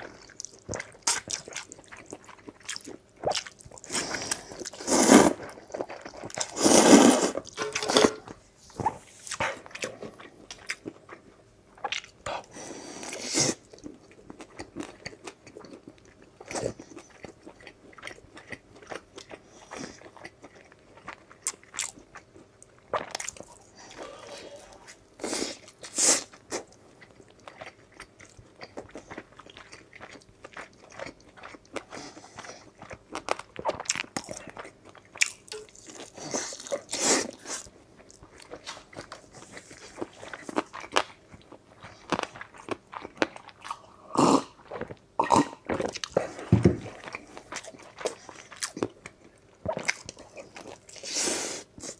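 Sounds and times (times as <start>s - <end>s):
close-miked crunchy chewing: 0.0s - 51.9s.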